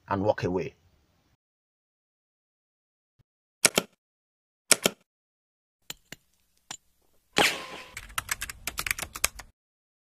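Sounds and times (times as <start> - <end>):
quick run of typing clicks: 8.0 - 9.5.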